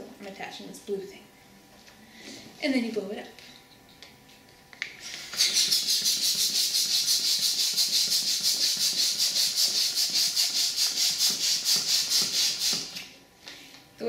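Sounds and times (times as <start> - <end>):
balloon pump hissing air puffs: 5.0 - 13.1.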